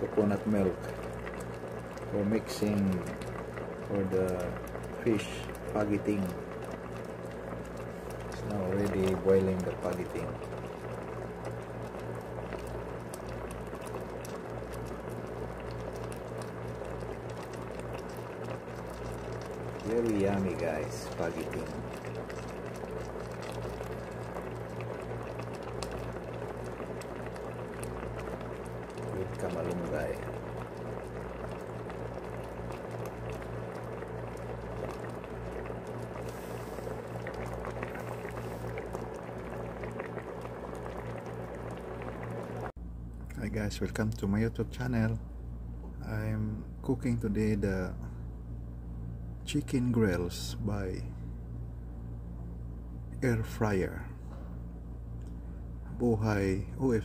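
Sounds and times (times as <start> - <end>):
pot bubbling with small pops: 0.0 - 42.8
low steady hum: 0.0 - 57.0.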